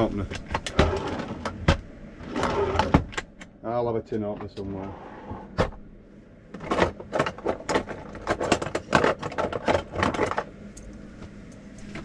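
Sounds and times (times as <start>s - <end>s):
cutlery clattering in drawer: 6.6s - 10.4s.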